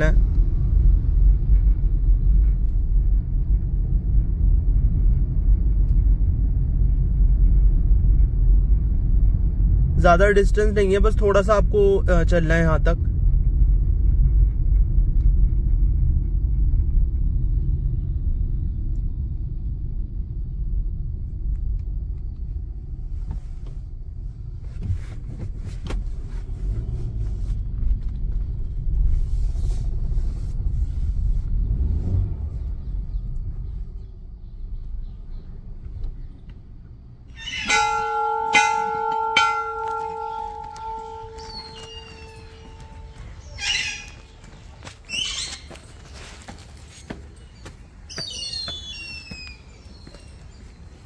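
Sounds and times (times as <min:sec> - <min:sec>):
car cabin road and engine rumble: 0:00.0 - 0:51.0
temple bell ringing: 0:37.4 - 0:43.6.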